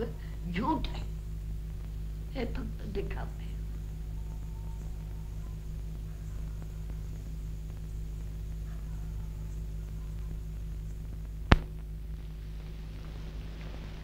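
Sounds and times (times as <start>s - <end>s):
low hum: 0.0s - 14.0s
sharp click: 11.5s - 11.7s.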